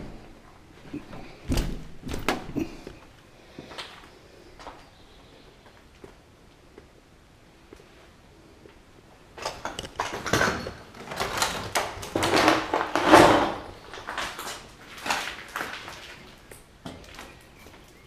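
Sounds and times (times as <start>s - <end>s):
debris clattering: 9.4s - 17.3s
footsteps crunching through rubble: 9.9s - 18.0s.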